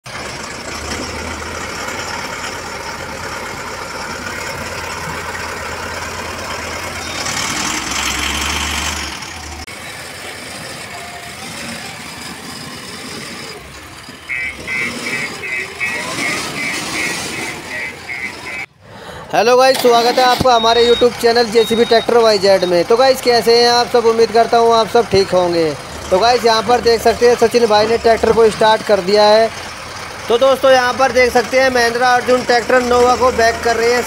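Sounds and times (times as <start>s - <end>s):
tractor diesel engine running: 0.0s - 34.0s
reversing alarm beeps: 14.3s - 18.7s, 20.4s - 22.8s.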